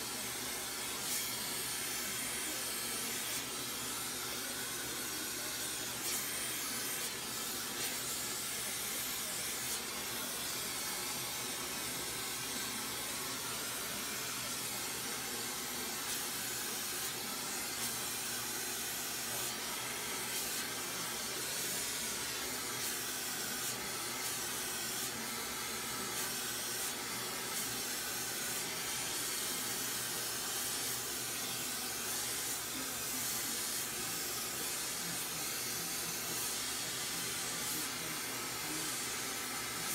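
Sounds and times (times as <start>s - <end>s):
torch flame hissing: 13.0s - 39.9s.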